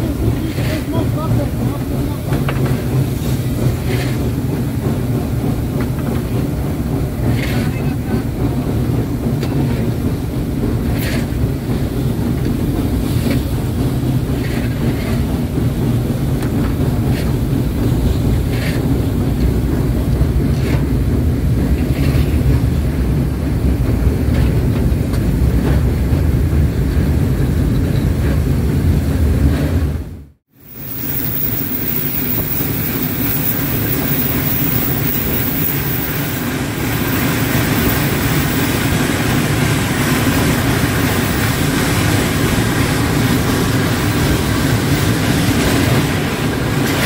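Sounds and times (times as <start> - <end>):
wheel clicks over rail joints: 0.0 - 28.8
train rumbling on rails: 0.0 - 47.0.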